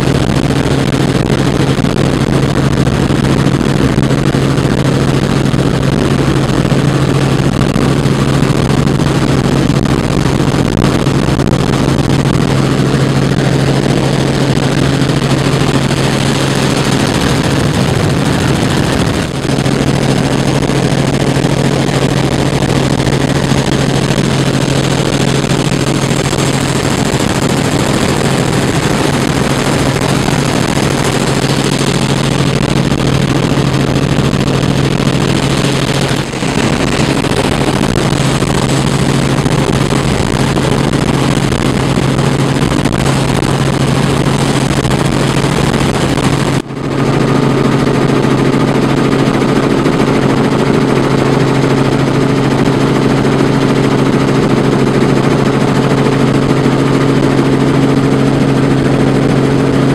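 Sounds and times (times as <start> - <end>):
humming tone: 0.0 - 45.1
helicopter rotor and engine drone: 0.0 - 59.9.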